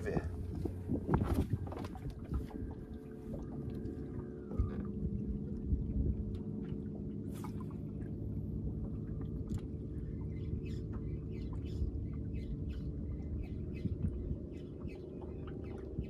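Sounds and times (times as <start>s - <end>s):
light splashes: 0.0s - 16.0s
steady low hum: 0.0s - 16.0s
water lapping against boat hull: 0.0s - 16.0s.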